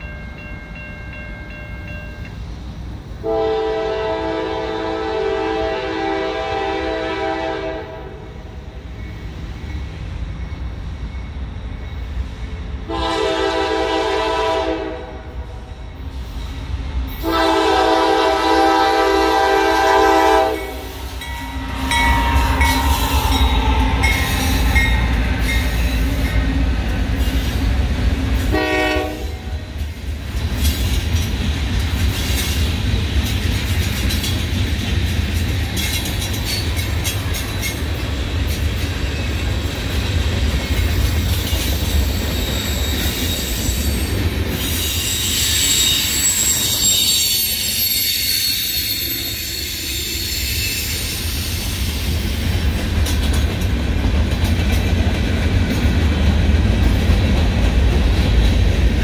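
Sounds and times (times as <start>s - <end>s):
freight train rumble: 0.0s - 59.0s
train horn blasts: 3.2s - 8.4s, 12.8s - 15.6s, 17.2s - 26.4s, 28.5s - 29.7s
train horn short toot: 3.2s - 8.4s, 12.8s - 15.6s, 17.2s - 26.4s, 28.5s - 29.6s
wheels clattering over rail joints: 29.8s - 39.2s.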